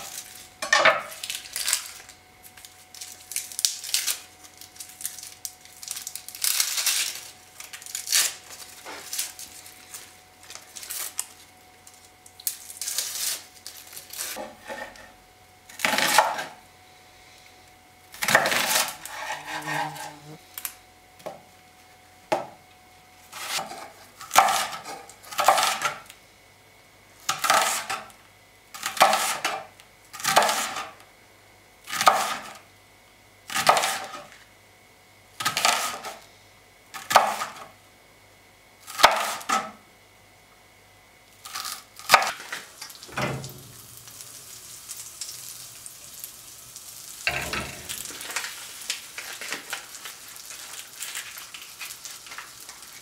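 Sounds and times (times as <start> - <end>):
knife cutting onion on board: 18.2 - 20.3, 23.3 - 26.0, 27.3 - 28.1, 28.8 - 30.9, 31.9 - 32.6, 33.5 - 34.3, 35.4 - 36.2, 37.0 - 37.7, 38.9 - 39.8.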